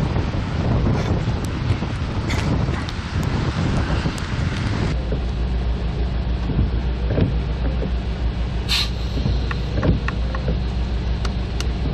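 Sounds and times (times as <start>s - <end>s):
windshield wipers sweeping: 0.0s - 11.9s
car engine idling: 4.1s - 11.9s.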